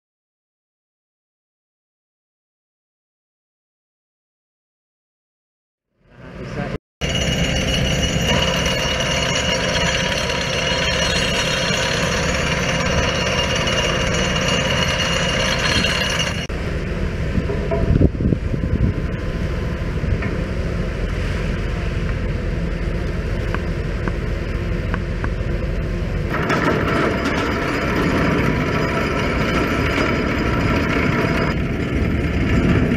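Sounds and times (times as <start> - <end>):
vibratory pile driver rattling: 7.0 - 16.5, 25.8 - 32.9.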